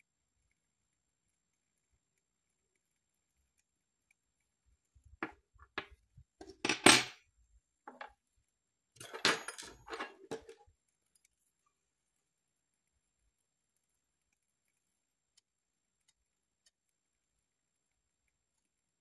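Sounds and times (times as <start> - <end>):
metal instrument clinking: 6.6 - 7.2, 9.0 - 10.6.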